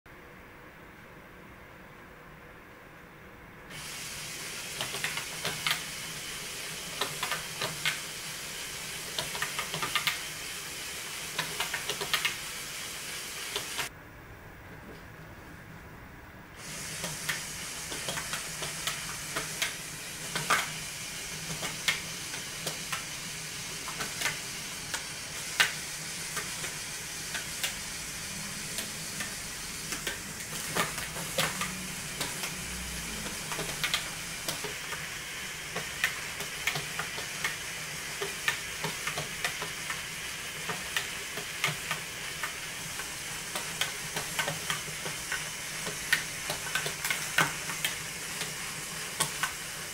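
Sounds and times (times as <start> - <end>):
motor and plastic gears whirring: 16.6 - 49.9.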